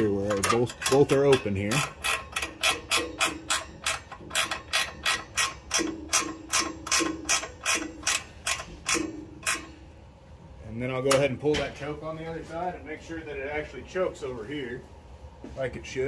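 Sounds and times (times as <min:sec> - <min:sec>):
socket ratchet clicking: 0:00.3 - 0:09.7.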